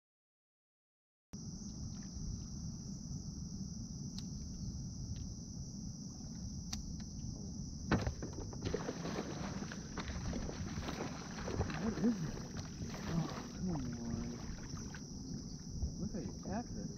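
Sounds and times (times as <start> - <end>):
constant low rumble: 1.4 - 16.9
insect chorus: 1.4 - 16.9.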